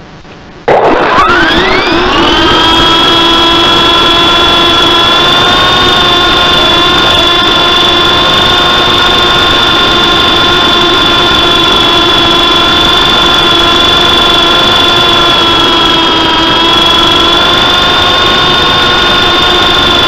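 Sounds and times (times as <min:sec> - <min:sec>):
rc helicopter motor whine: 0:01.0 - 0:20.0.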